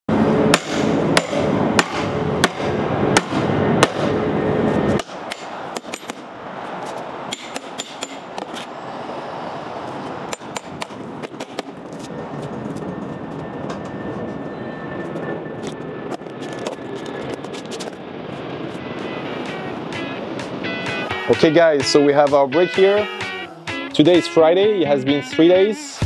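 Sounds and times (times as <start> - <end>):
sharp hammer-like strikes: 0.5 - 4.1, 5.0 - 6.3, 7.3 - 8.3, 19.9 - 24.2
loud steady din: 18.0 - 25.2.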